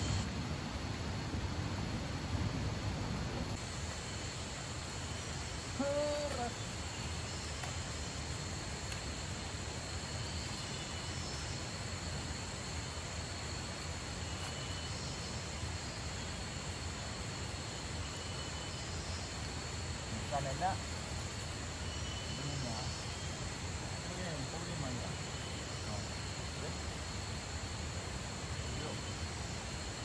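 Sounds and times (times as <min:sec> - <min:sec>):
high insect drone: 0:00.0 - 0:00.8, 0:03.5 - 0:30.0
faint chirps: 0:13.8 - 0:27.7, 0:28.3 - 0:30.0.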